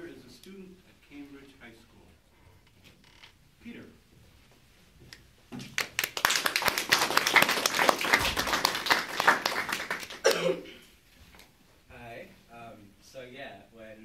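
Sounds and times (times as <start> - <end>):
small audience applauding: 5.6 - 10.4.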